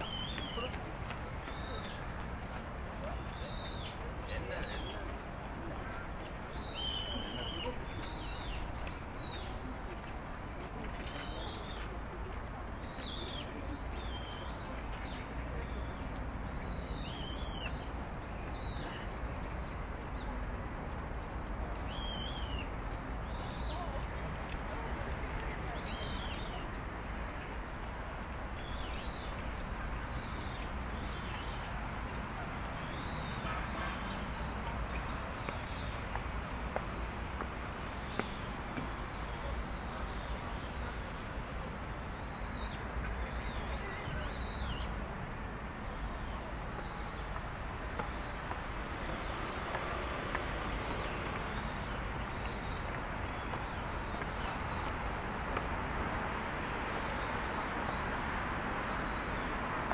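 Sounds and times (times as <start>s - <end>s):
distant city traffic hum: 0.0s - 59.9s
insect chorus trilling: 32.8s - 59.9s.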